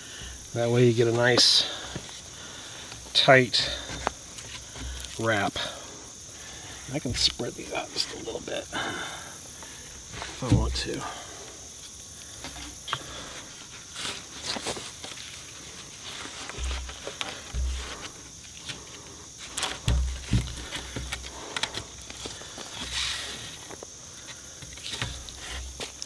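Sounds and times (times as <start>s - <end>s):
high insect drone: 0.0s - 26.0s
cord scraping over bark: 0.6s - 26.0s.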